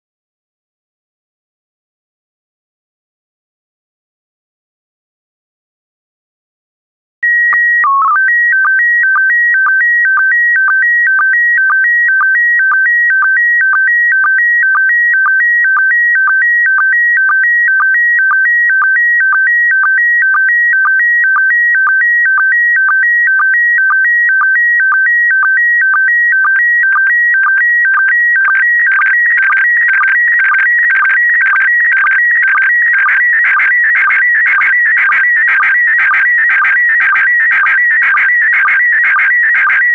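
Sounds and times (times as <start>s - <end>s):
calibration header tone: 25.9s - 39.9s.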